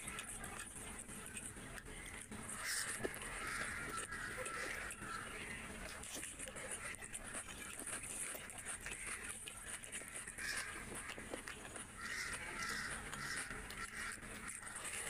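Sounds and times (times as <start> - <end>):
chewing and lip smacks: 5.8 - 15.0.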